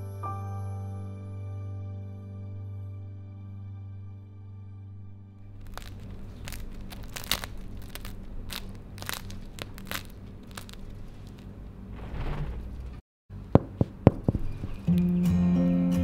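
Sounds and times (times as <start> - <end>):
bread crust crackling: 5.4 - 12.4
fingers tapping loaf: 13.6 - 14.7.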